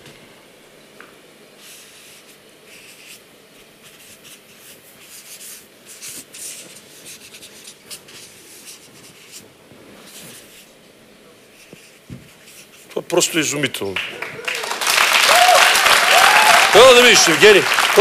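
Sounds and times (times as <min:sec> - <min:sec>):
markers scratching on paper: 0:01.6 - 0:10.7, 0:11.5 - 0:13.0.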